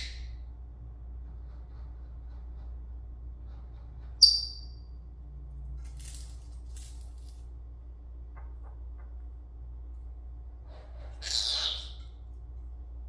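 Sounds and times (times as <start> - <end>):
parrot squeak: 0.0 - 0.4, 4.2 - 4.8, 11.2 - 12.1
low room hum: 0.0 - 13.0.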